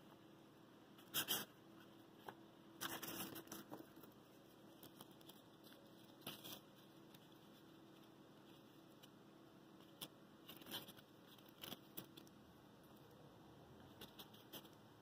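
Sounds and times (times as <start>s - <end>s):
faint steady hum: 0.0s - 15.0s
handling rustling and crinkling: 1.3s - 13.0s.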